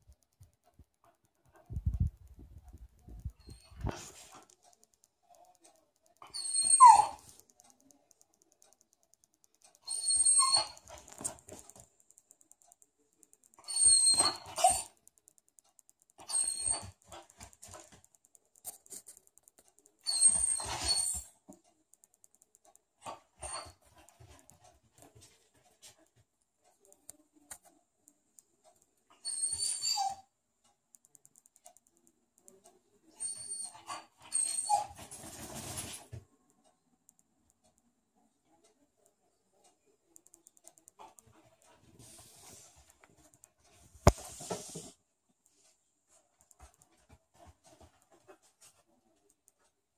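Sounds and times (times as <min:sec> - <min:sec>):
dog whining: 0:06.2 - 0:07.3, 0:09.8 - 0:10.9, 0:13.6 - 0:14.9, 0:16.2 - 0:17.0, 0:20.0 - 0:21.2, 0:29.2 - 0:30.3, 0:33.2 - 0:35.0.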